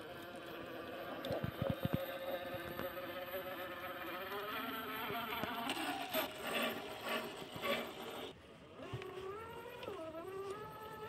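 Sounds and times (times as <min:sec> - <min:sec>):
electric motor whining: 0:00.0 - 0:11.0.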